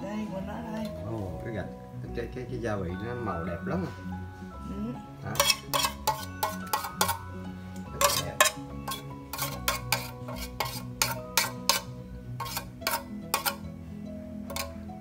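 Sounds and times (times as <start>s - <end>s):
background music: 0.0s - 15.0s
utensil knocking against metal tin: 8.0s - 13.6s, 14.5s - 14.8s.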